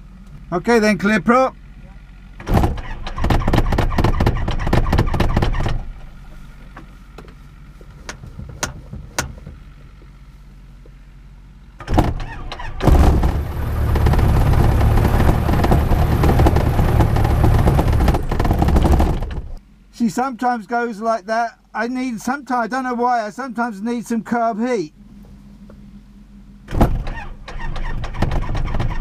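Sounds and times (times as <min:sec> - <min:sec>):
aircraft engine cranking: 0:02.4 - 0:09.6, 0:11.8 - 0:19.6, 0:24.9 - 0:29.0
aircraft engine running: 0:12.2 - 0:19.6.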